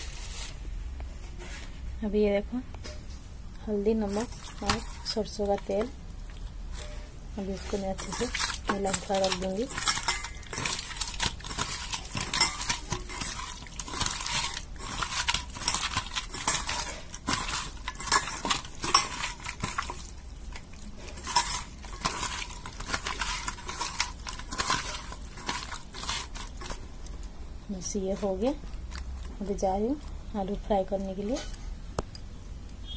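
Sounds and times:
wet squelching of hand mixing: 3.9 - 31.0
clinks and scrapes against steel bowl: 4.0 - 27.2, 31.0 - 31.8.

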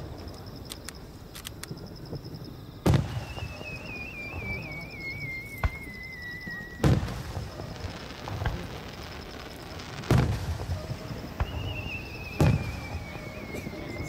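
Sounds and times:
firework crack: 0.0 - 14.0
fireworks bangs: 0.0 - 14.0
firework whistle falling in pitch: 2.9 - 7.6, 11.4 - 14.0.

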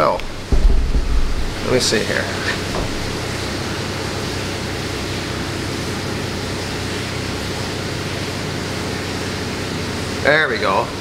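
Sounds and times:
low hum: 0.0 - 3.8
steady rushing noise: 0.0 - 3.9.

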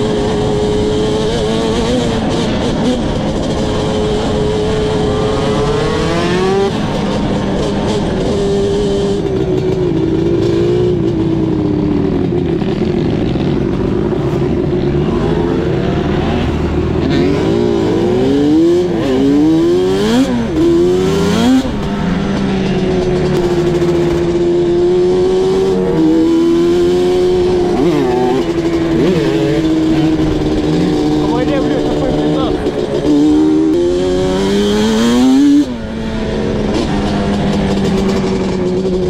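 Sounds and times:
two-stroke engine revving: 0.0 - 39.0.

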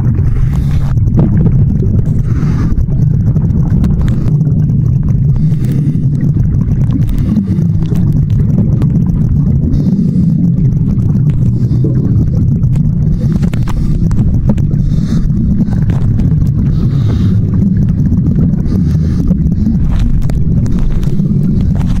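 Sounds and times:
underwater low rumble: 0.0 - 22.0
faint clicks: 10.3 - 22.0.

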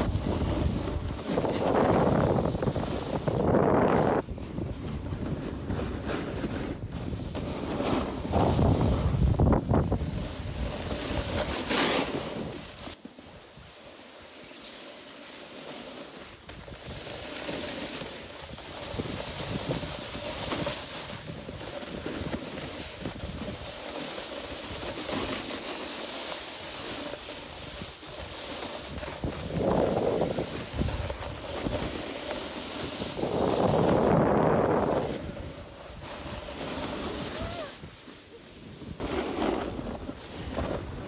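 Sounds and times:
wind on microphone: 0.0 - 7.2, 8.3 - 11.4, 28.9 - 32.0, 32.8 - 41.0
snowboard edges carving snow: 0.0 - 41.0.

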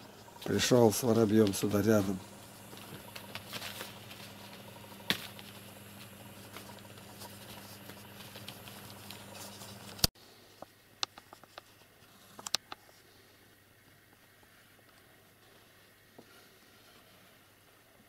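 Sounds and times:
steady low hum: 0.0 - 11.1.

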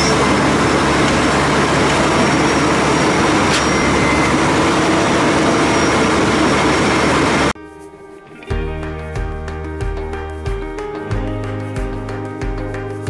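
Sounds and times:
diesel engine running: 0.0 - 7.5.

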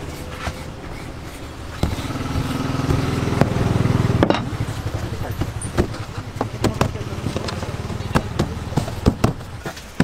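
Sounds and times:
small engine running: 1.8 - 5.4
sharp knocks: 5.4 - 10.0.

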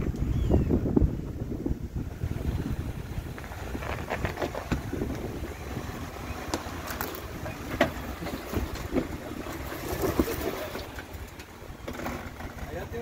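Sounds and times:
vehicle engine rumble: 0.0 - 13.0
sharp knocks and clunks: 7.5 - 9.2.

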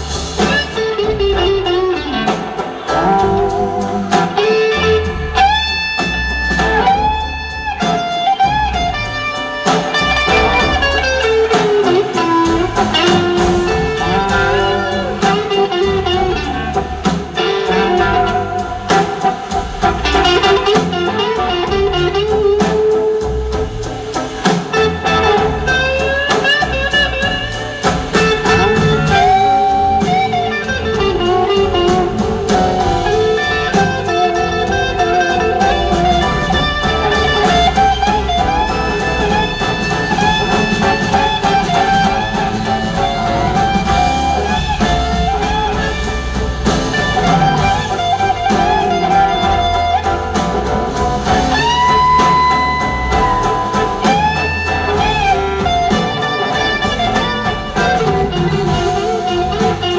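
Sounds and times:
drum kit: 0.0 - 59.9
electric slide guitar solo: 46.9 - 50.1, 54.0 - 59.9.

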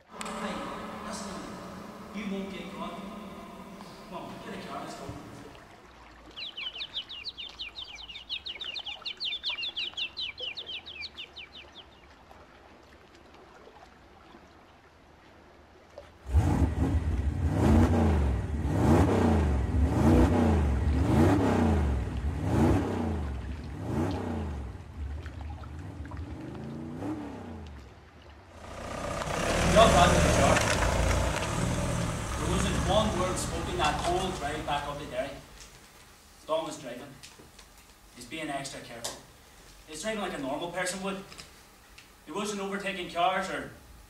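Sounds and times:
engine revving: 0.0 - 5.5, 16.3 - 27.8, 28.6 - 35.5
small bird trilling: 6.4 - 11.8.

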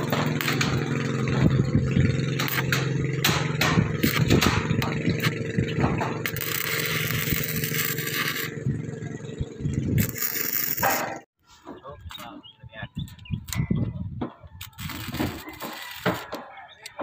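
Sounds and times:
engine hum: 0.0 - 11.3
tools knocking on steel sheets: 2.6 - 5.1.

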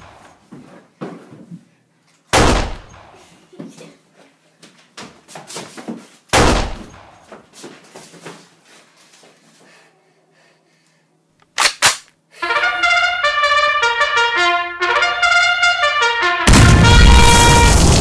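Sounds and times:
sharp bangs: 2.3 - 3.2, 6.4 - 7.2, 16.2 - 18.0
bangs and thumps in a room: 5.0 - 8.5
trumpet tune: 12.4 - 18.0.

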